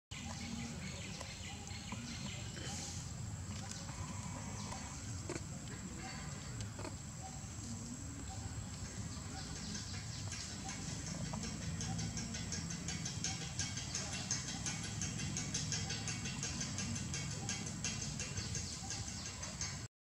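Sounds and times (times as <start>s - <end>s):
faint monkey calls: 0.2s - 19.9s.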